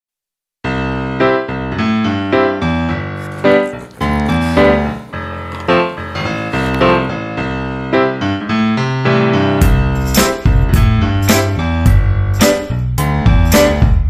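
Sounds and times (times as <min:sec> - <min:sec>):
piano background music: 0:04.4 - 0:14.0.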